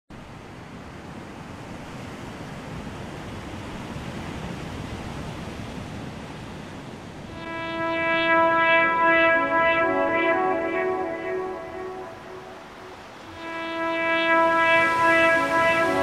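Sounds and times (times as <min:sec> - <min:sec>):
steady rushing noise: 0:07.1 - 0:16.0
music with held chords: 0:07.3 - 0:16.0.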